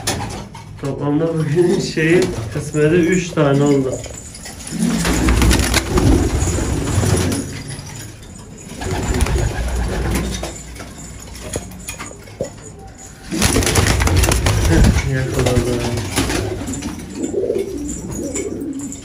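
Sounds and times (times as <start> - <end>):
pigeons cooing: 4.5 - 7.8, 8.6 - 10.5, 12.5 - 19.0.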